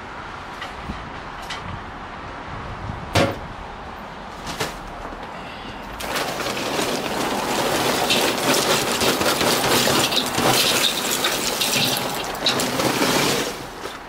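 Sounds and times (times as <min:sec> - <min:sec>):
charcoal clattering into grill: 0:06.0 - 0:14.0.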